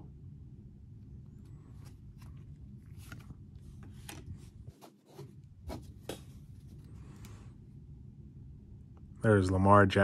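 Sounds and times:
low steady hum: 0.0 - 10.0
cards rustling and sliding: 1.3 - 7.4.

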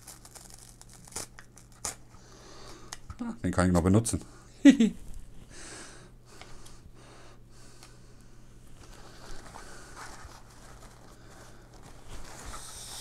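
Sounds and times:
steady low hum: 0.0 - 13.0
fabric pouch rustling: 8.8 - 13.0.

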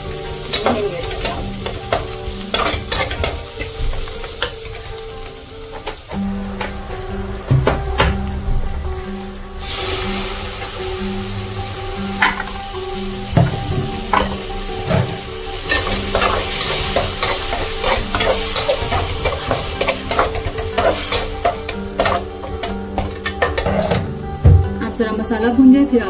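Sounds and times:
spoon stirring and scraping pan: 0.0 - 6.9, 12.1 - 24.4
onions sizzling in hot oil: 0.0 - 24.4.

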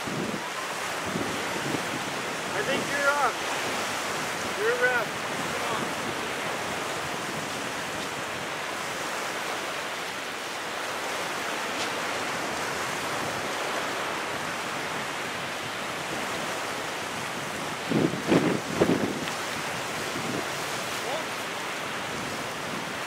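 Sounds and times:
small surf breaking: 0.0 - 23.0
wind rushing: 17.1 - 21.2.

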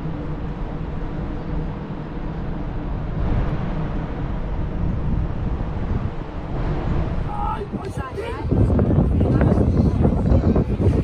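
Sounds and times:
ship low rumble: 0.0 - 11.0
wind buffeting microphone: 0.0 - 11.0.

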